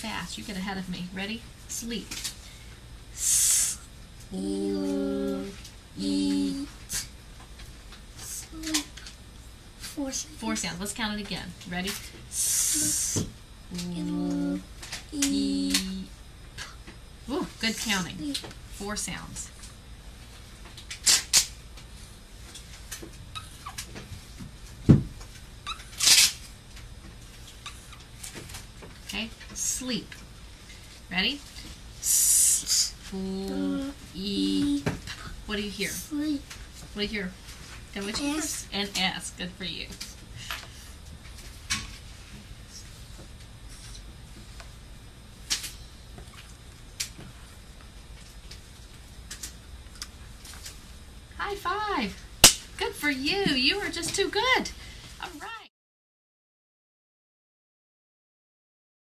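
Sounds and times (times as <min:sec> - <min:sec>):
steady low hum: 0:00.0 - 0:55.7.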